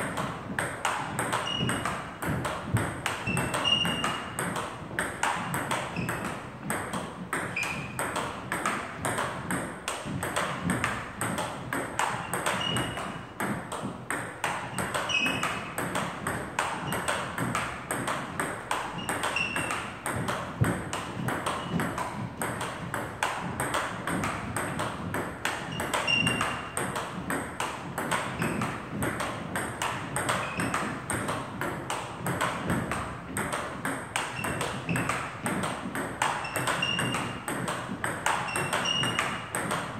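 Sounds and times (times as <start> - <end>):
table tennis ball clicks: 0.0 - 39.9
shoe squeak: 1.2 - 2.2, 3.2 - 4.5, 5.8 - 6.6, 7.4 - 8.1, 12.1 - 13.4, 14.6 - 15.8, 16.7 - 17.4, 18.8 - 20.0, 21.2 - 22.0, 25.6 - 26.8, 30.4 - 30.8, 34.2 - 35.4, 36.3 - 37.5, 38.3 - 39.6.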